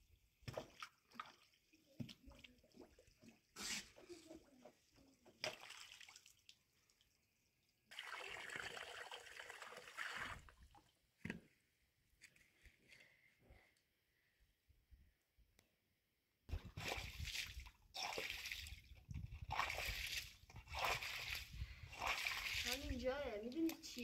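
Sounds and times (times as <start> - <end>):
hose water trickling: 5.7 - 10.9, 16.9 - 24.0
water splashing: 16.6 - 24.0.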